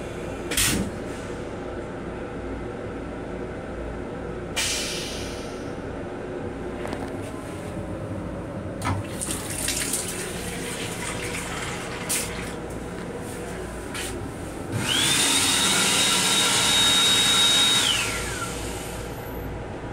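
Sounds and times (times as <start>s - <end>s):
train low rumble: 0.0s - 15.1s, 18.2s - 19.9s
faucet running thin stream: 9.1s - 12.6s
hand dryer blowing: 14.7s - 19.1s.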